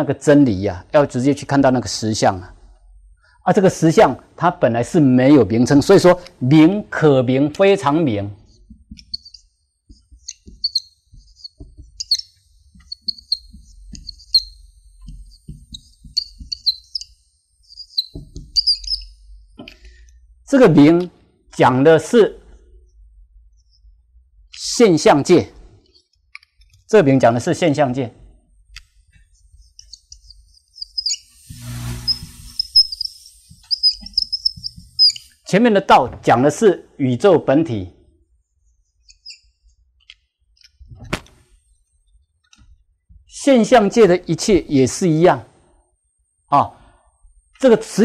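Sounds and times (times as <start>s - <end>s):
marker squeaking on a whiteboard: 8.4s - 19.6s, 28.6s - 35.4s, 38.6s - 40.3s
marker tip tapping board: 8.7s - 17.1s, 18.0s - 19.0s, 33.5s - 35.2s.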